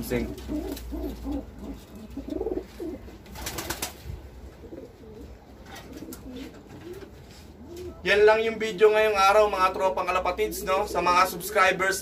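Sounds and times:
pigeons cooing: 0.0 - 8.1, 10.2 - 11.8
rustling or scraping: 5.5 - 7.9.

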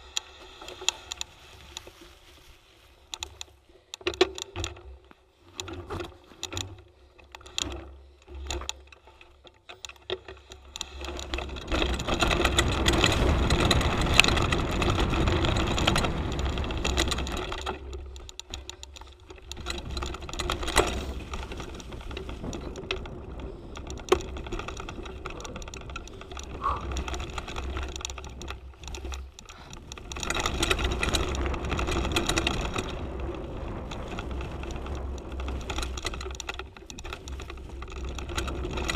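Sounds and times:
bike rattling over bumps: 0.0 - 38.9
tyre and wind rush: 10.8 - 17.8, 19.4 - 38.9.

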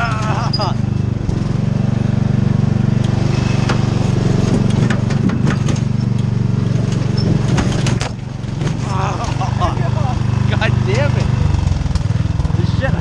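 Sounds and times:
riding mower engine running: 0.0 - 13.0
wagon knocking and clattering: 2.9 - 9.9.

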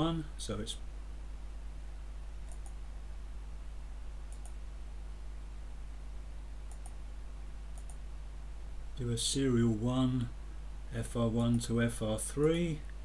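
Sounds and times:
low electrical hum: 0.0 - 13.0
computer mouse clicks: 2.4 - 2.8, 4.3 - 4.6, 6.7 - 7.0, 7.7 - 8.0.

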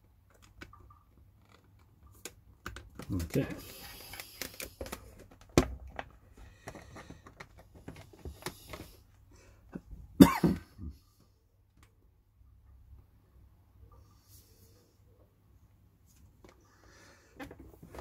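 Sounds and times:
plastic camera clicks and rustles: 0.2 - 9.0
man coughing: 10.2 - 11.0.

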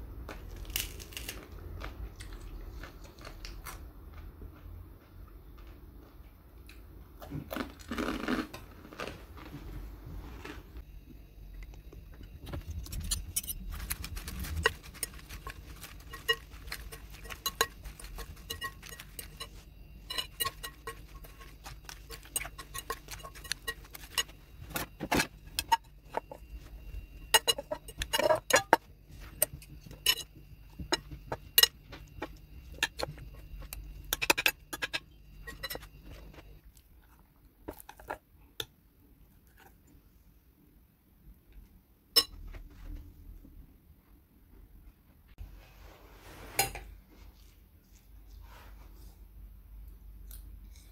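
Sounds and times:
cutlery clinking on glass bowl: 12.9 - 26.4, 27.2 - 36.4, 42.2 - 42.4.

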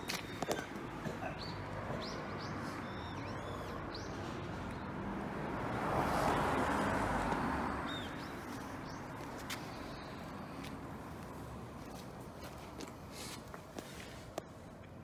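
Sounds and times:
bird chirps: 1.4 - 4.9.

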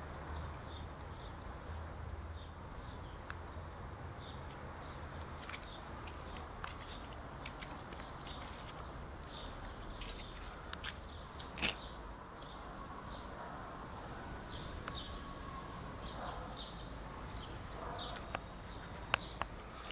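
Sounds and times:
steady background hiss: 0.0 - 19.9
small birds chirping: 0.3 - 19.9.

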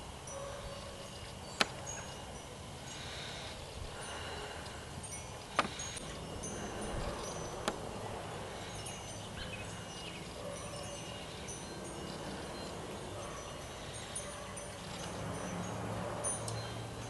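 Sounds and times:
background hiss: 0.0 - 15.2.

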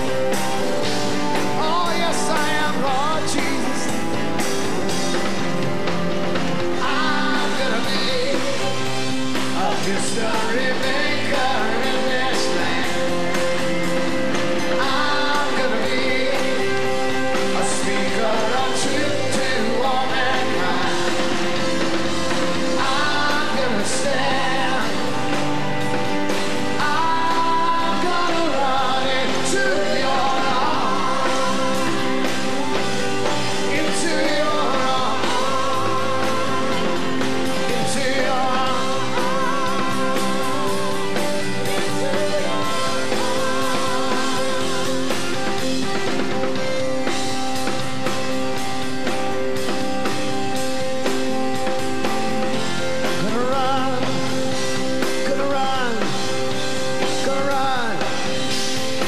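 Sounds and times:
live rock band playing: 0.0 - 59.0
people singing: 6.4 - 49.3, 51.6 - 59.0.

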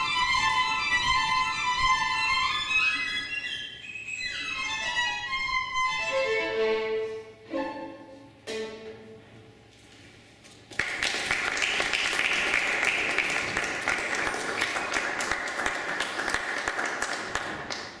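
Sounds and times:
audience applause: 10.7 - 18.0.

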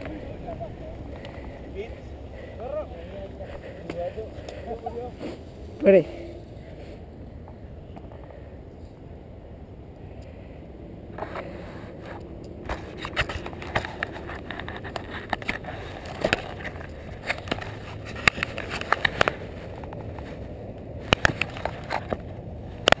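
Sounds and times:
low steady rumble: 0.0 - 15.0
camera rattling clicks and knocks: 12.2 - 20.3, 21.1 - 23.0.

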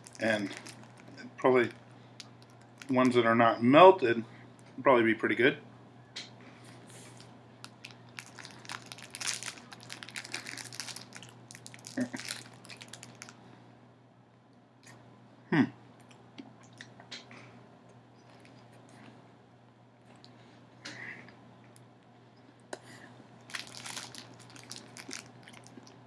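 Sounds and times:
plastic wrapper crinkling: 0.0 - 3.2, 7.6 - 13.4, 23.4 - 26.0.

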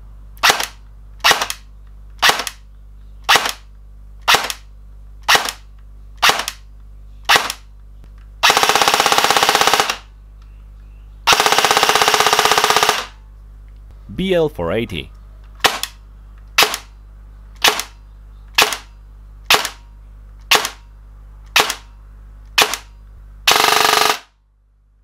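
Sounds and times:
airsoft gun full-auto bursts: 0.4 - 1.6, 3.3 - 4.6, 5.2 - 5.6, 6.2 - 6.6, 7.3 - 7.6, 8.4 - 10.1, 11.3 - 13.2, 18.6 - 18.9, 19.5 - 19.8, 23.5 - 24.4
airsoft gun single shots: 0.4 - 1.6, 2.2 - 2.6, 3.3 - 5.6, 6.2 - 6.6, 7.3 - 7.7, 15.6 - 16.0, 16.6 - 16.9, 17.6 - 18.0, 18.6 - 18.9, 19.5 - 19.8, 20.5 - 20.8, 21.5 - 21.9, 22.6 - 22.9.

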